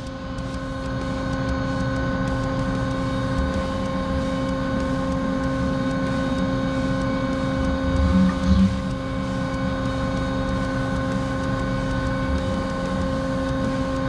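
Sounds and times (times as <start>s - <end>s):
machine hum and rumble: 0.0s - 14.0s.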